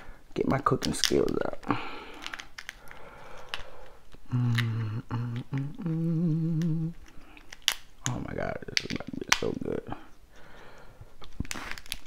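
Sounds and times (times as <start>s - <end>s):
lobster shell cracking: 0.8s - 5.9s, 6.5s - 9.8s, 10.5s - 12.0s
man humming low notes: 4.2s - 7.0s.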